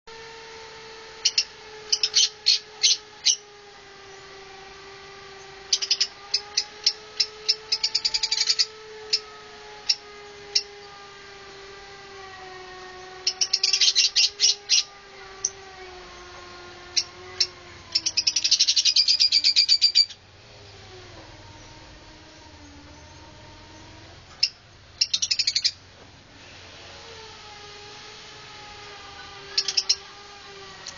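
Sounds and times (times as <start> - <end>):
steady low hum: 0.1 - 30.9
lovebird shrill chirps: 24.4 - 25.8.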